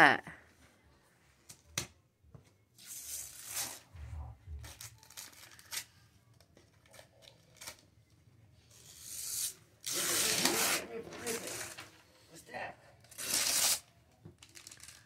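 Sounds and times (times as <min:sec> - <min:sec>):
wrapping paper tearing: 0:02.8 - 0:03.9, 0:04.6 - 0:06.0, 0:06.8 - 0:07.8, 0:08.7 - 0:11.9, 0:13.0 - 0:15.0
paper crinkling: 0:04.6 - 0:06.0, 0:09.9 - 0:12.0.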